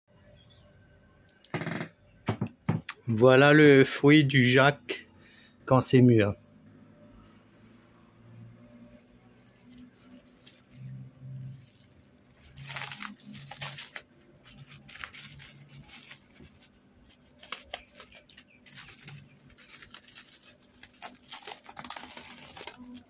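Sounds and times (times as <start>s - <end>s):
plastic cling film crinkling: 8.4s - 23.0s.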